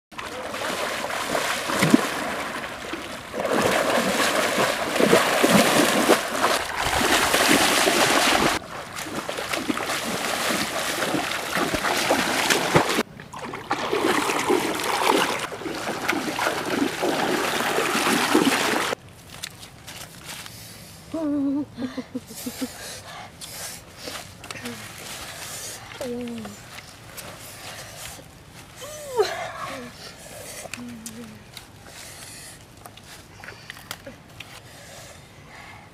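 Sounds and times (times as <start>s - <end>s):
running through flood water: 0.1s - 19.0s.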